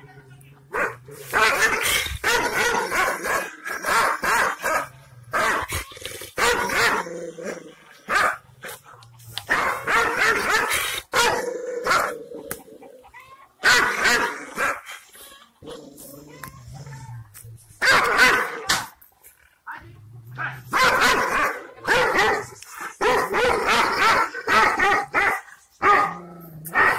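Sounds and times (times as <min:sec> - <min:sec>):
dog barking and snarling: 0:00.7 - 0:12.5, 0:13.6 - 0:17.1, 0:17.8 - 0:19.0, 0:20.3 - 0:26.9
dog growling: 0:04.8 - 0:08.0.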